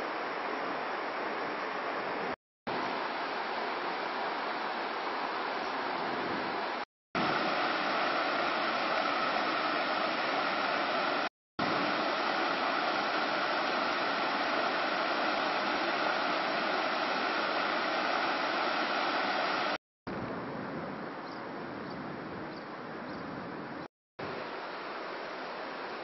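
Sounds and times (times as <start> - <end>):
river water rushing over rocks: 0.1 - 19.8.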